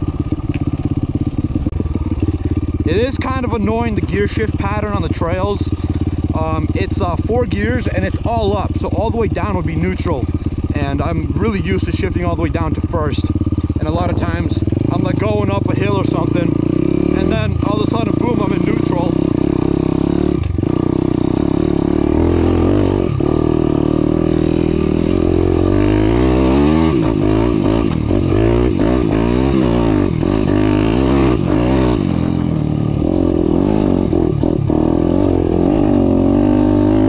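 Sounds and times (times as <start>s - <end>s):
motorbike engine revving: 0.0s - 37.0s.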